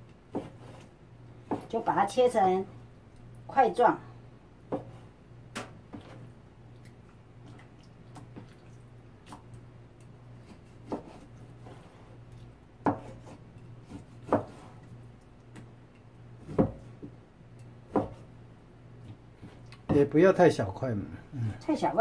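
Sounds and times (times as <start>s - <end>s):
knife slicing and rubbing: 12.9s - 14.8s.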